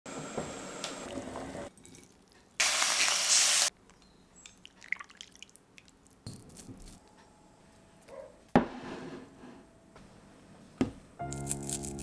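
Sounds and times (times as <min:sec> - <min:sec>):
loud hiss: 0:02.6 - 0:03.7.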